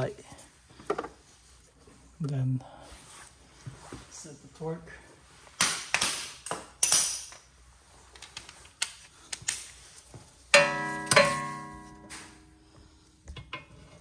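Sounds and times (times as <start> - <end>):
loud metallic clang: 10.6 - 12.6.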